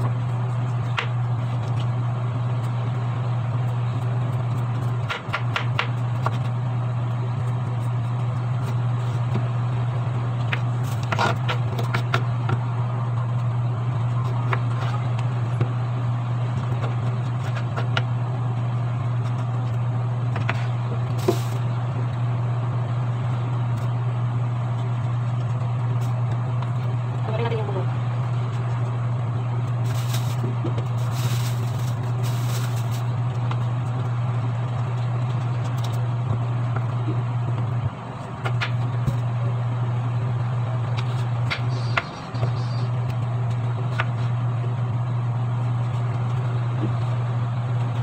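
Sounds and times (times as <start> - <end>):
steady low hum: 0.0 - 48.0
knife scraping gourd peel: 16.7 - 18.0.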